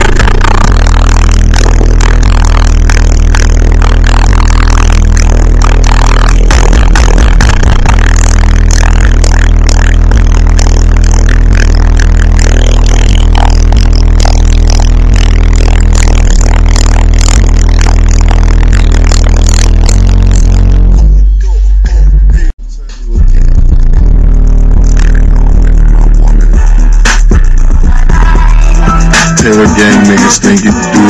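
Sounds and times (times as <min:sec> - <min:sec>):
buzzing rattle: 0:00.0 - 0:20.8
bass-heavy music from subwoofers: 0:00.0 - 0:31.0.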